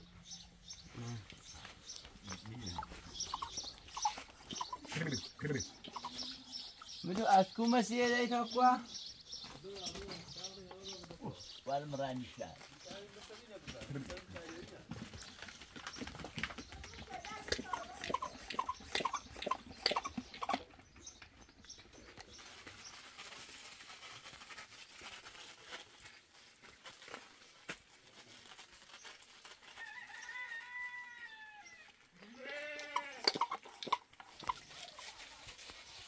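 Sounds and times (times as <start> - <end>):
goat bleating: 32.2 - 33.6.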